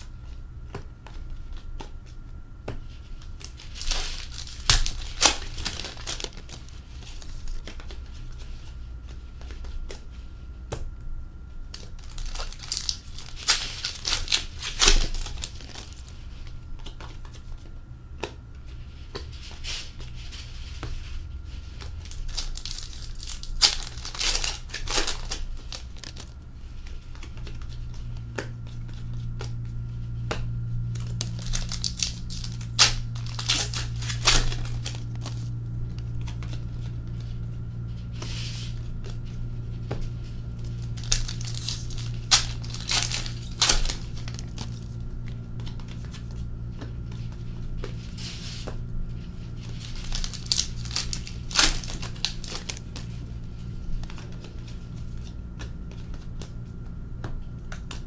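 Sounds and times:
cards being handled: 0:00.0 - 0:11.0, 0:11.6 - 0:58.0
low steady hum: 0:00.0 - 0:58.0
card wrappers tearing and crinkling: 0:03.2 - 0:08.1, 0:11.7 - 0:16.2, 0:21.7 - 0:26.4, 0:30.9 - 0:37.4, 0:40.5 - 0:48.7, 0:49.4 - 0:56.5.

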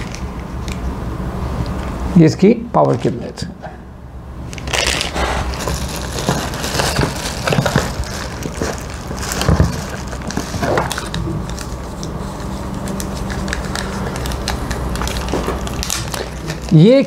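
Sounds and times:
plastic packaging crinkling: 0:04.5 - 0:17.0
cardboard box rustling: 0:04.8 - 0:16.7.

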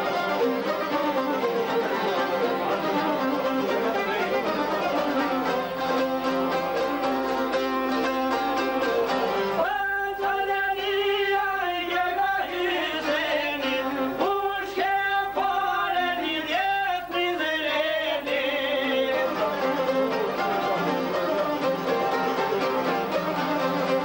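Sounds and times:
fiddle: 0:00.0 - 0:09.9, 0:17.1 - 0:24.0
strummed lute: 0:00.0 - 0:24.0
man singing folk song: 0:01.7 - 0:07.4, 0:08.0 - 0:22.5.

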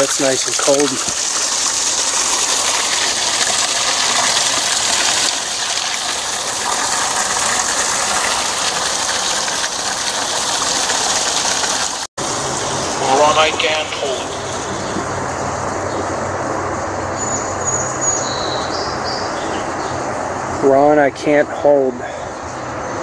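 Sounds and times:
spring water splashing: 0:00.0 - 0:15.7.

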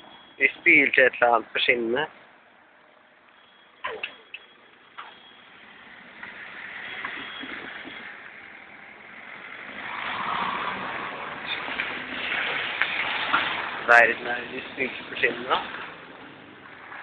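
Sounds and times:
vehicle passing by: 0:07.7 - 0:16.0.

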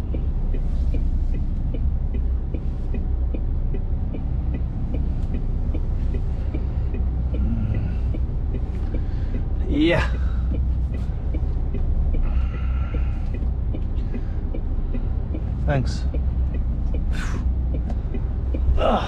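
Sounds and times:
diesel engine idling low: 0:00.0 - 0:19.0
light even ticking: 0:00.0 - 0:19.0.

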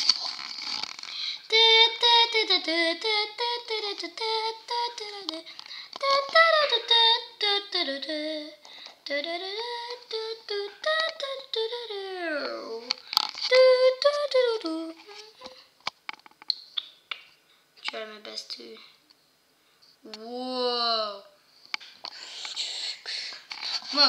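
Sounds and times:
child singing wordlessly: 0:01.4 - 0:15.5.

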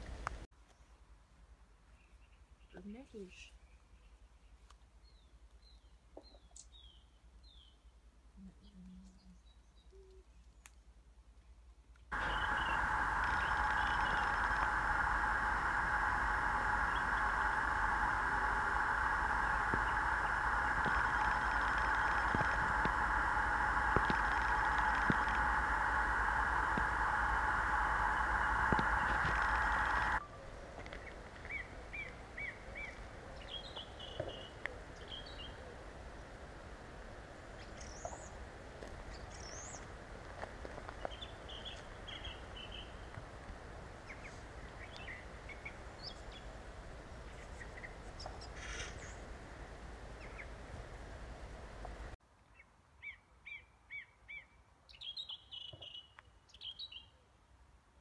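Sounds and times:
steady outdoor hiss: 0:00.0 - 0:58.0
songbirds chirping: 0:00.6 - 0:36.4, 0:40.9 - 0:43.2, 0:52.4 - 0:57.2.

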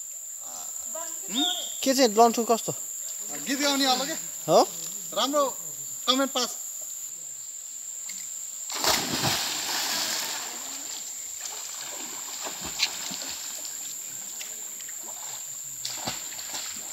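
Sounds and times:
high-pitched insect drone: 0:00.0 - 0:16.9
water splashing: 0:08.7 - 0:16.9.

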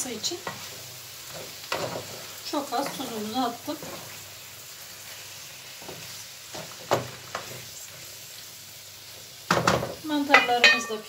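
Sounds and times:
food sizzling in a frying pan: 0:00.0 - 0:11.0
wooden spoon knocking on pan: 0:09.5 - 0:11.0.

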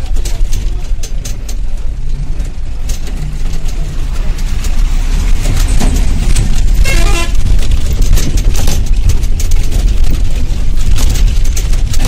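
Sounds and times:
bus rumbling on rough road: 0:00.0 - 0:12.0
rattling: 0:00.0 - 0:12.0
vehicle horn toot: 0:06.8 - 0:07.5.

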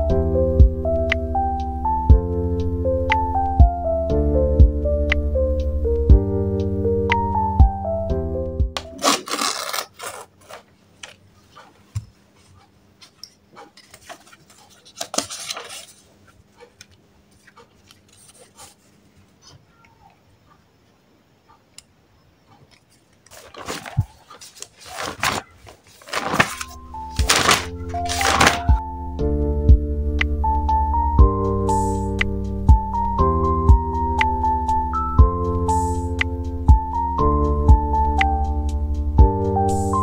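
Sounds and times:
background music: 0:00.0 - 0:09.6, 0:26.2 - 0:40.0
pages turning: 0:08.8 - 0:11.8, 0:12.4 - 0:19.0, 0:23.2 - 0:28.8
paper rustling: 0:08.8 - 0:19.0, 0:22.8 - 0:28.8.

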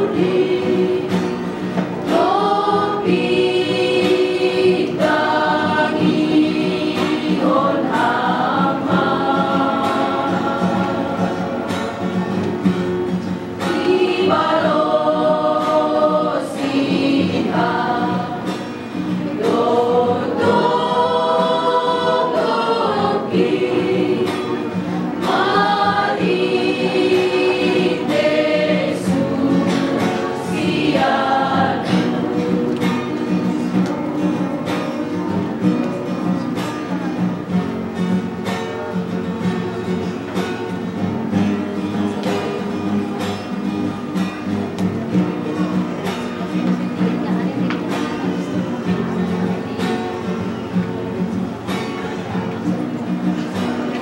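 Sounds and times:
women singing a hymn in harmony: 0:00.0 - 0:12.8, 0:13.6 - 0:36.5
strummed guitar: 0:00.0 - 0:54.0.

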